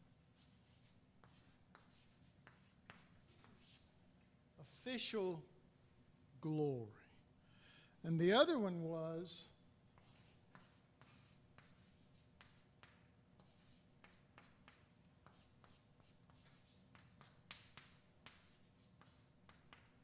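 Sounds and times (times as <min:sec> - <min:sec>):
chalk writing on blackboard: 0:00.1 - 0:04.0, 0:09.9 - 0:20.0.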